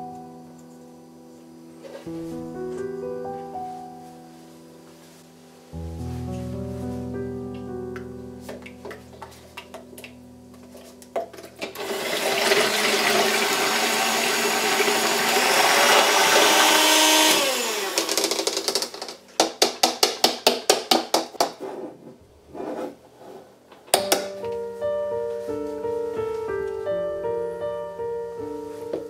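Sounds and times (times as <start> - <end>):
electric hand mixer whirring: 11.8 - 18.8.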